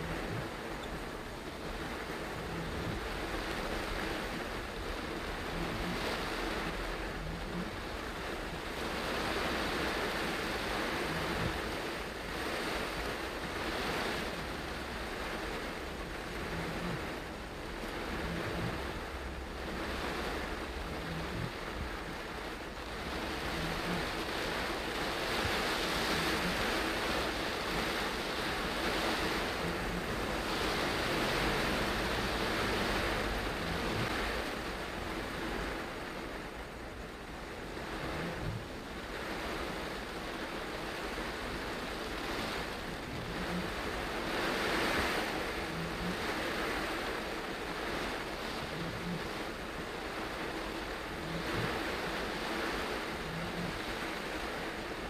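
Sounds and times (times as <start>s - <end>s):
car engine rumble: 0.0s - 42.2s
heavy rain on car roof: 0.0s - 55.0s.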